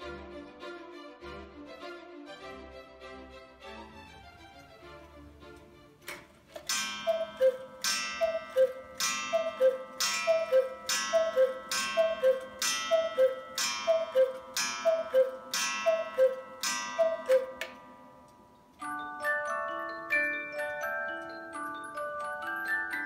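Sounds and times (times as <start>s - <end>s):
cuckoo clock two-note call: 6.6s - 18.6s
ringing metallic strike: 6.7s - 18.7s.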